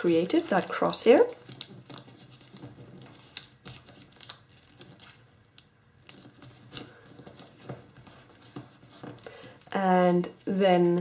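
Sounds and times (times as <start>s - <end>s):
foil crinkling as folded: 0.0s - 5.2s.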